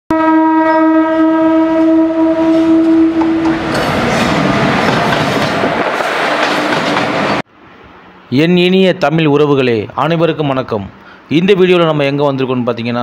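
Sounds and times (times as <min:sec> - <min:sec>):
train horn blast: 0:00.1 - 0:03.6
train passing with rushing rattle: 0:01.6 - 0:08.3.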